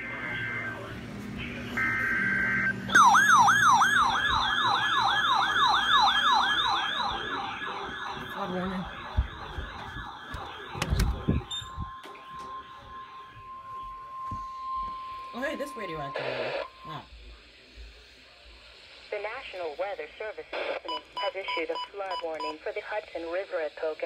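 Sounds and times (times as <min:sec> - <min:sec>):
steady attention tone: 0:00.0 - 0:17.3
warbling siren alarm: 0:01.7 - 0:17.0.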